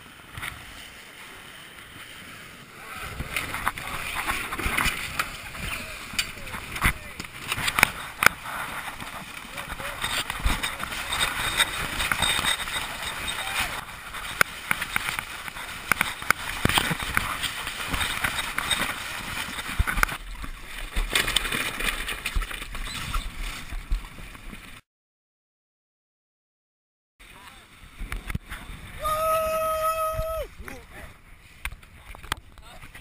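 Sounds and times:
wind and water rushing along hull: 0.0 - 24.8, 27.2 - 33.0
sailcloth and lines rustling: 0.1 - 24.8.

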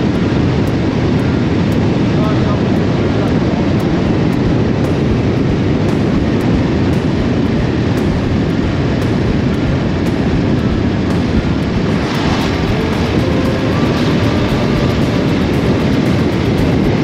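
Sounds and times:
motorcycle riding at speed: 0.0 - 17.0.

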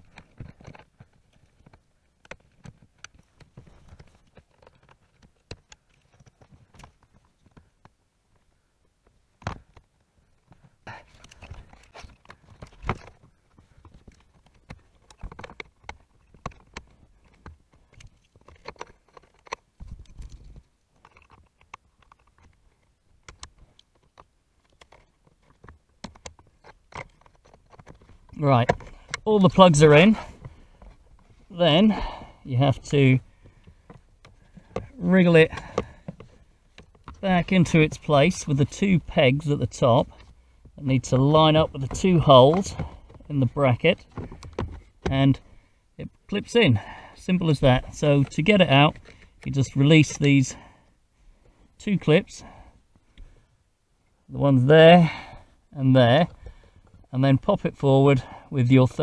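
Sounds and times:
wiring rustling: 9.4 - 50.5.

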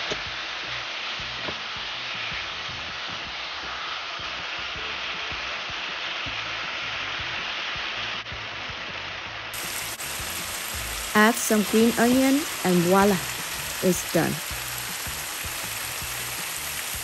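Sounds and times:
sauce sizzling in a frying pan: 0.0 - 17.0.

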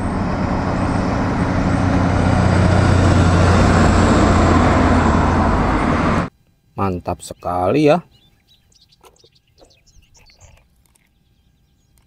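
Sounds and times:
passing traffic: 0.0 - 6.3
truck engine droning: 0.0 - 6.3.

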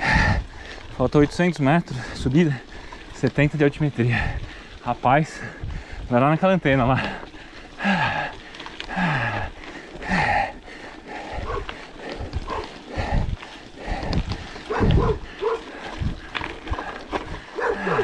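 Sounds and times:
dog barking: 11.4 - 11.7, 14.7 - 15.7, 17.6 - 18.0.

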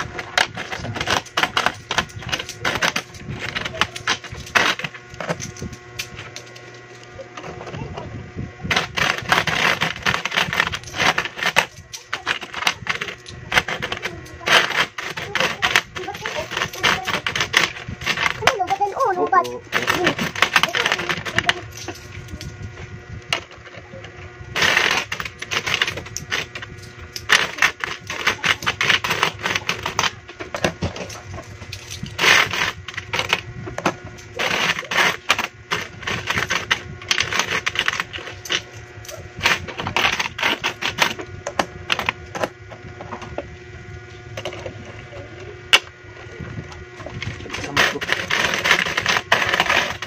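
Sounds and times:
coins clinking while stacked: 19.7 - 22.5, 24.6 - 33.4, 34.3 - 41.2.

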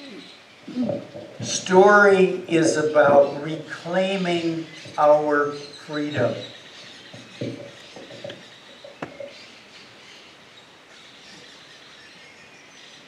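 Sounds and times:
faint bird chirping: 0.0 - 13.0
low steady background noise: 0.0 - 13.0
soft knocks: 7.1 - 9.3.

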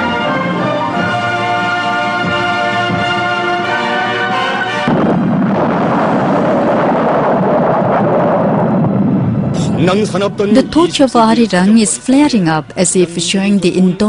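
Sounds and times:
orchestral music with brass: 0.0 - 5.6, 9.6 - 14.0
loud dense rumbling roar: 3.4 - 10.8.

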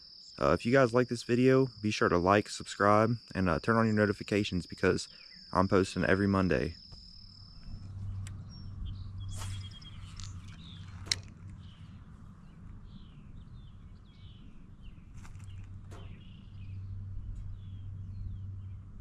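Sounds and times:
insect trill: 0.0 - 18.6
low steady hum: 0.0 - 19.0
small birds chirping: 0.0 - 19.0
sharp clicks: 9.4 - 11.9.

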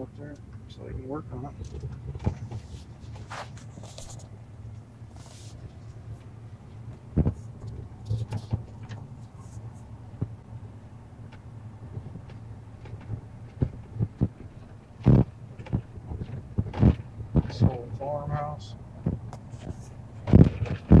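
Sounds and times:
car interior driving hum: 0.0 - 21.0.

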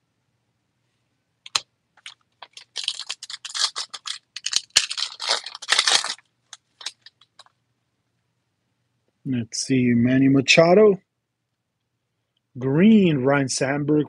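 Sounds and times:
foil wrapper crinkling: 1.5 - 7.5
foil pack tearing snap: 2.4 - 6.2.

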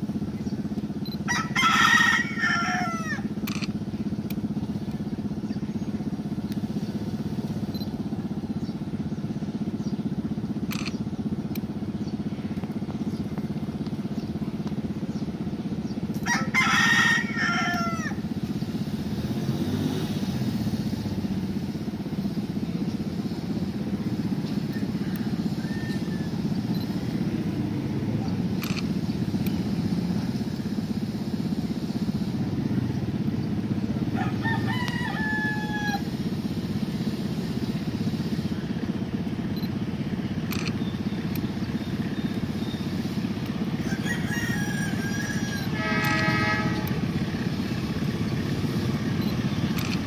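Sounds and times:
steady low hum: 0.0 - 50.0
rooster crowing: 1.2 - 3.4, 16.2 - 18.3, 24.7 - 26.7, 34.1 - 36.2, 43.7 - 46.9.

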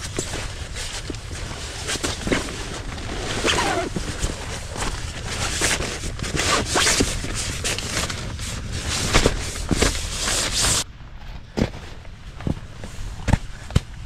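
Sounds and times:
tent fabric rustling: 0.0 - 10.8
zipper rasps: 0.1 - 10.8.

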